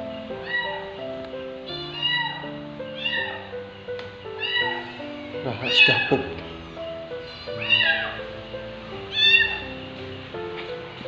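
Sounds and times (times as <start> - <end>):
background music with held notes: 0.0 - 11.0
kitten meowing: 0.4 - 1.0, 1.8 - 3.6, 4.4 - 5.0, 7.5 - 8.2, 9.1 - 9.7.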